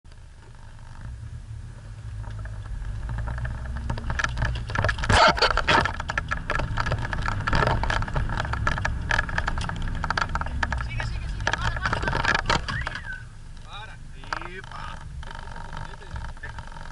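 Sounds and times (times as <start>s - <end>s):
vehicle rattling over ruts: 0.1s - 16.9s.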